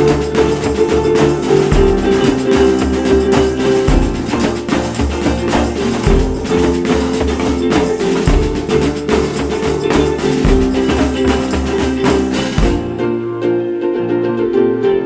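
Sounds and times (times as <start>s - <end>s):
plucked guitar music with percussion: 0.0s - 15.0s.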